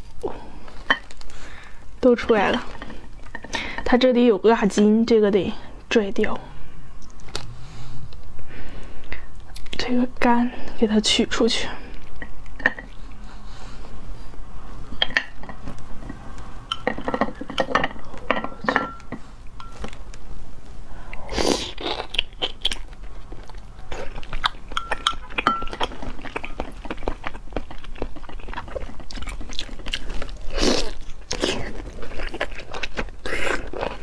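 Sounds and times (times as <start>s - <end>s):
crunchy chewing: 21.1s - 34.0s.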